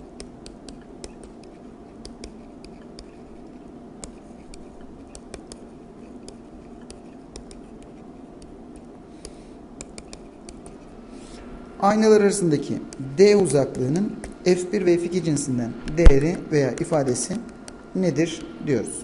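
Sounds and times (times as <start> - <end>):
stylus tapping on tablet: 0.0 - 10.8
faint steady hum: 0.0 - 19.0.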